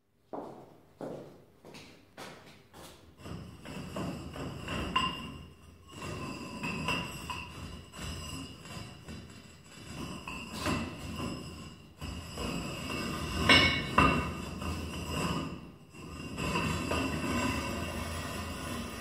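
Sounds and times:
ceramic rings clinking and ringing: 0:13.3 - 0:16.8.

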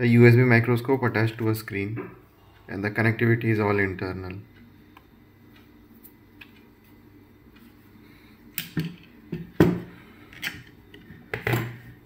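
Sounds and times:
sharp knocks and clatters on desk: 0:08.6 - 0:09.9.

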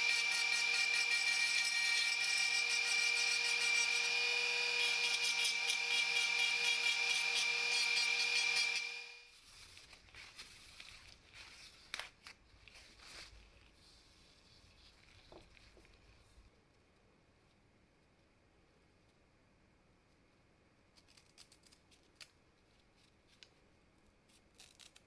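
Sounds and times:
rotary tool whining: 0:00.0 - 0:09.2.

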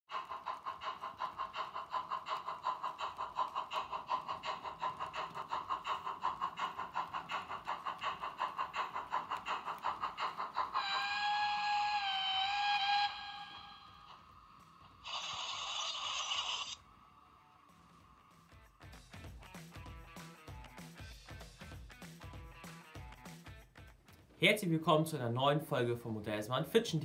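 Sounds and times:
model steam locomotive chuffing: 0:00.1 - 0:16.8
steam whistle: 0:10.7 - 0:14.3.

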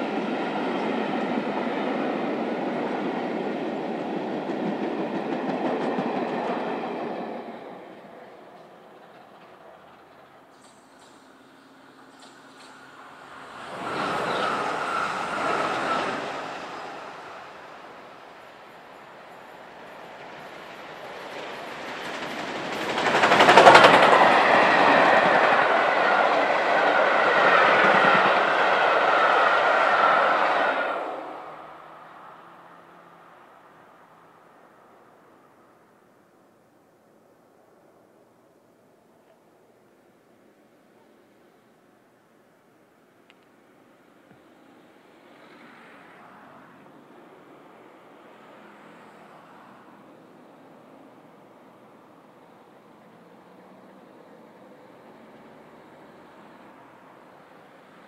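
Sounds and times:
train wheels rumbling on rails: 0:00.0 - 0:31.8.

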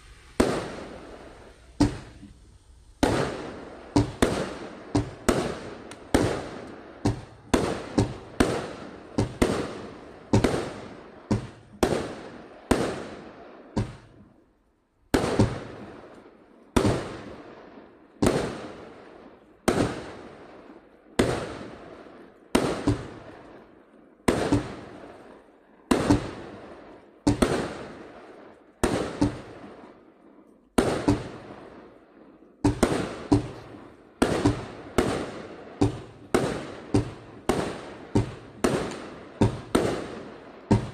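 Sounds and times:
fireworks shells bursting: 0:00.0 - 0:12.0.

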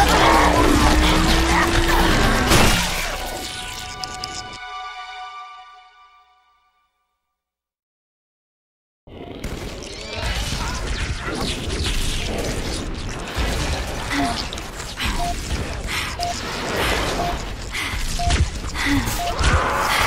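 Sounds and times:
short electronic beep: 0:17.2 - 0:17.4, 0:18.2 - 0:18.4, 0:19.2 - 0:19.4.

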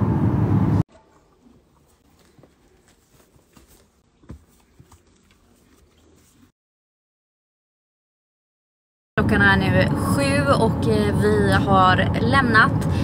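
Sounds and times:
car road noise: 0:00.0 - 0:00.8
faint clicks and rustles: 0:00.9 - 0:06.5.

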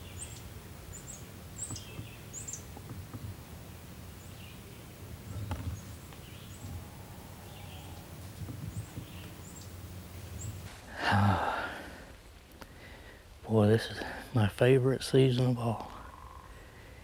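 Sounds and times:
high bird chirps: 0:00.0 - 0:02.8
man sighing loudly: 0:10.9 - 0:12.0.

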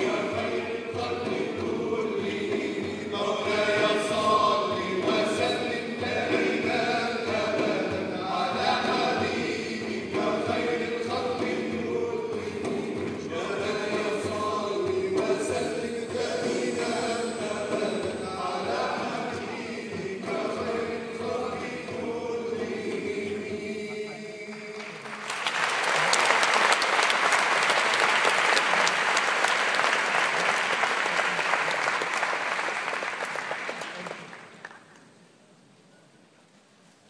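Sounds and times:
men's choir chanting: 0:00.0 - 0:25.1
audience applause: 0:24.5 - 0:35.0.

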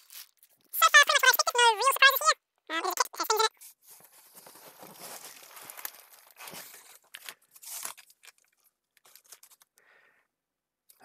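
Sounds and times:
plastic bags rustling: 0:03.7 - 0:09.8.

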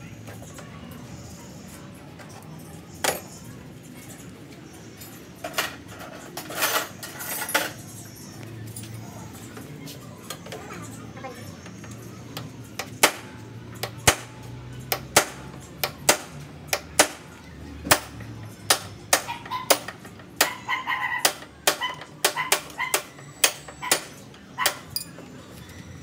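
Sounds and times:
hammer striking metal: 0:21.2 - 0:25.1.

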